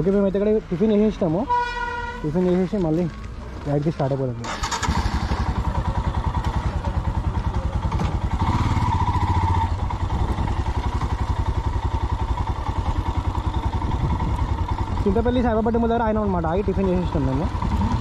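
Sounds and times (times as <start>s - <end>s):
motorcycle engine running: 4.4s - 18.0s.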